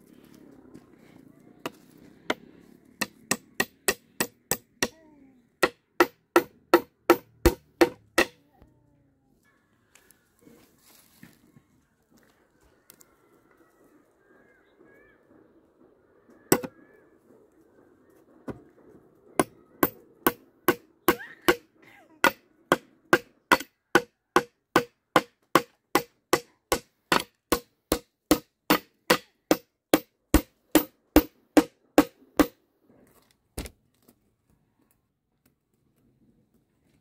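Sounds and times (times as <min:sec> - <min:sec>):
machete hammering nail: 0:03.0 - 0:05.0, 0:05.6 - 0:08.4, 0:22.2 - 0:32.6.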